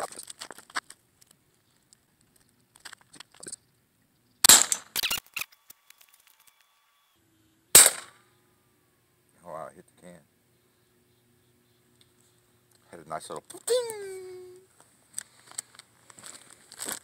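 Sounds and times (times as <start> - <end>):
air pistol firing: 4.4 - 5.2, 7.8 - 8.2.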